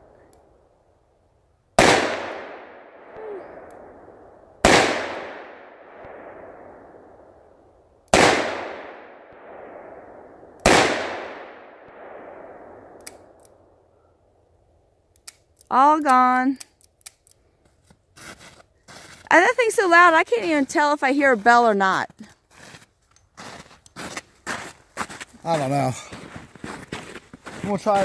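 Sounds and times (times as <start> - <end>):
revolver gunshots echoing: 1.8 - 7.3, 8.1 - 13.4.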